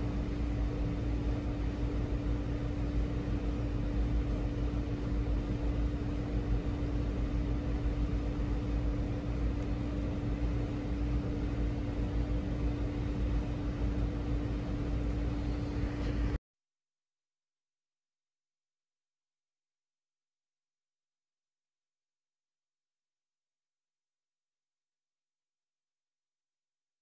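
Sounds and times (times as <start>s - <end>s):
steady machine hum: 0.0s - 16.4s.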